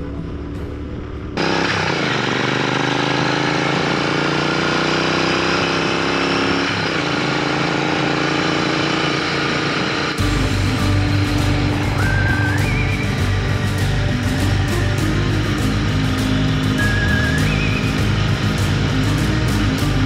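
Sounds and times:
motorcycle engine running: 0.0s - 20.0s.

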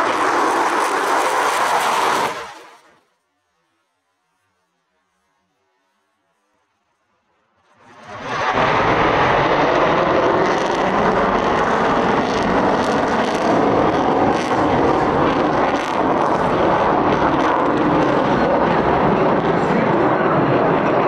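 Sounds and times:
jet engine roar: 0.0s - 3.0s, 7.6s - 21.0s.

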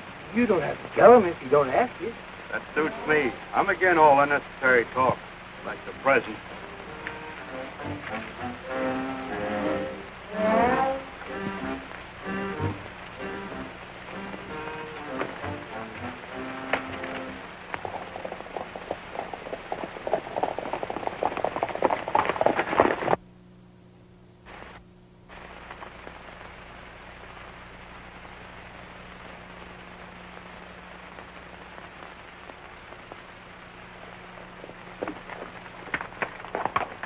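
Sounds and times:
horses hooves galloping: 0.0s - 8.4s, 10.6s - 23.2s, 31.1s - 37.0s
film soundtrack hiss and hum: 0.0s - 37.0s.

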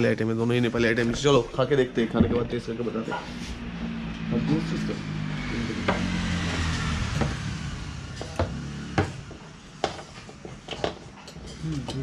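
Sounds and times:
utensils clinking on plate: 10.4s - 12.0s.

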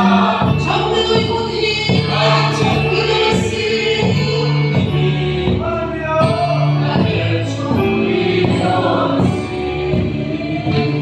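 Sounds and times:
woman singing into microphone: 0.0s - 5.6s
congregation singing: 0.0s - 11.0s.

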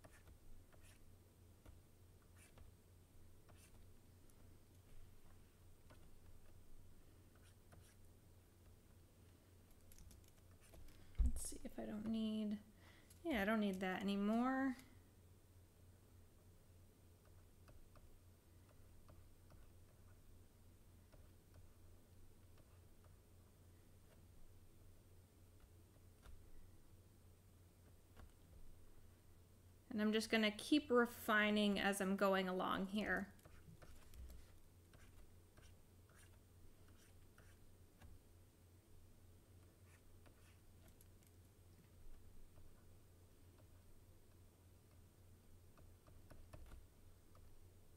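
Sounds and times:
stylus scratching on tablet: 0.0s - 2.8s, 3.4s - 4.0s, 4.9s - 8.8s, 10.1s - 11.0s, 33.2s - 38.1s, 39.6s - 41.4s
low steady hum: 0.0s - 47.9s.

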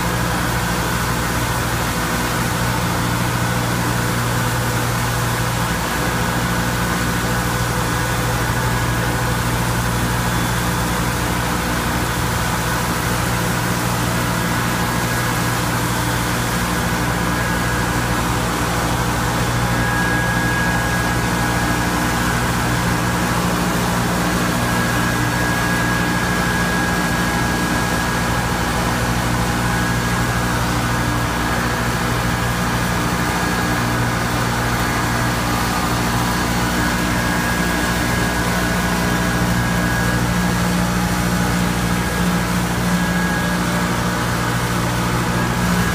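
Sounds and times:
industrial machinery humming: 0.0s - 45.9s.

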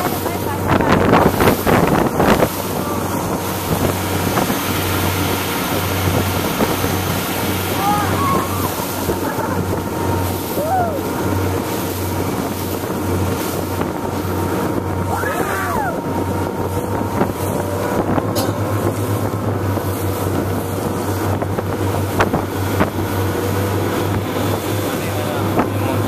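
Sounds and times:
outboard motor running: 0.0s - 26.0s
water rushing past hull: 0.0s - 26.0s
wind buffeting microphone: 0.0s - 26.0s.

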